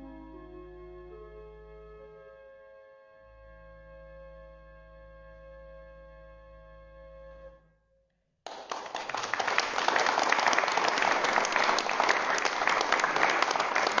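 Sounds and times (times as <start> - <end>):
pipe organ chord: 0.0 - 6.7
congregation applauding: 8.5 - 14.0.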